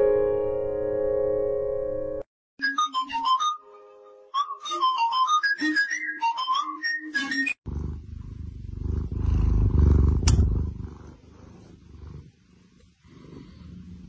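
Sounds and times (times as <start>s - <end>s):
cat purring: 7.7s - 14.0s
sharp click: 10.2s - 10.5s.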